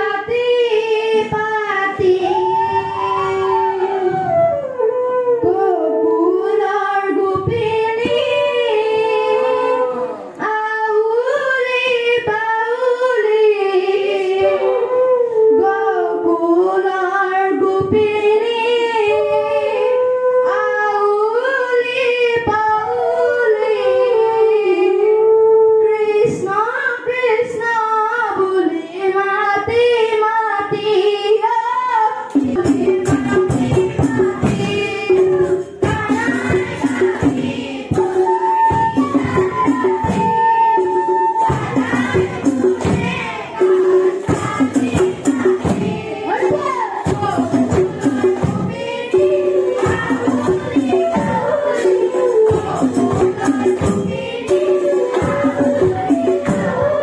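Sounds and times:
fast percussion: 32.2s - 57.0s.

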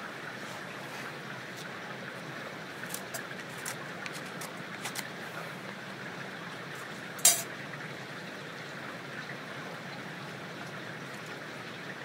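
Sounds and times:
running water: 0.0s - 12.0s
sharp metallic clink: 7.2s - 7.5s.

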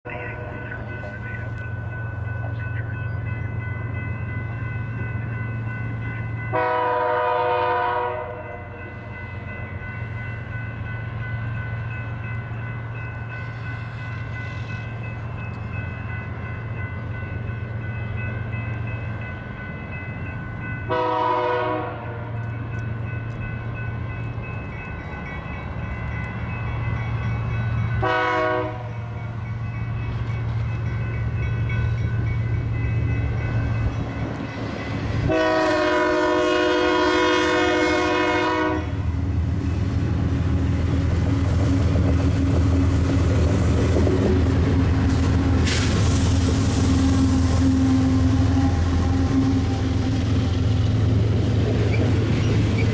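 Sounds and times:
locomotive engine rumble: 0.0s - 7.0s, 7.9s - 52.9s
crossing bell ringing: 0.0s - 45.6s
train horn blasts: 6.5s - 8.8s, 20.9s - 22.6s, 28.0s - 29.1s, 35.2s - 39.1s, 47.0s - 50.2s.

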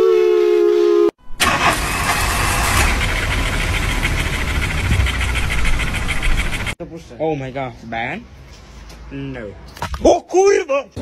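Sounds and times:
rough rumbling fluttering noise: 2.8s - 6.8s.

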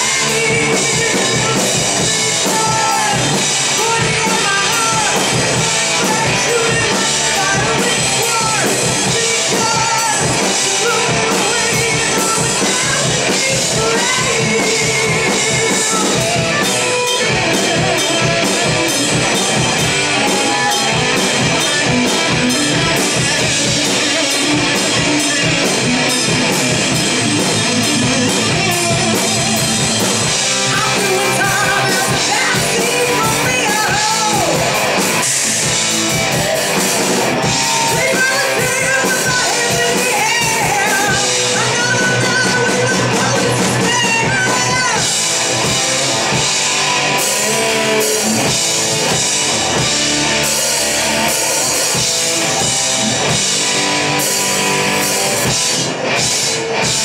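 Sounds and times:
woman singing: 0.0s - 16.7s, 30.6s - 35.6s, 37.5s - 45.2s
heavy metal band playing: 0.0s - 57.0s.

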